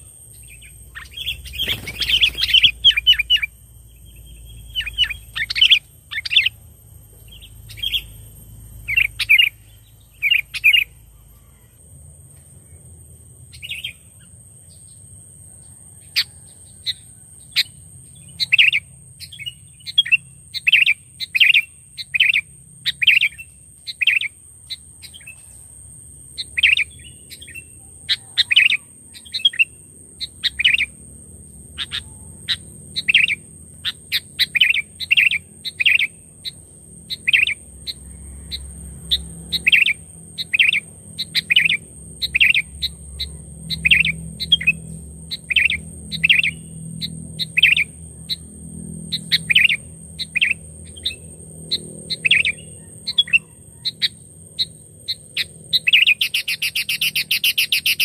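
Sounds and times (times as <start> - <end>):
bird singing sharp chirps: 0.0 - 6.6, 31.8 - 58.0.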